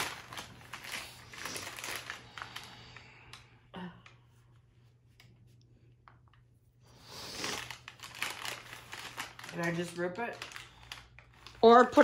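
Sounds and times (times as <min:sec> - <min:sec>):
paper bag rustling: 0:00.0 - 0:02.8, 0:07.4 - 0:12.0.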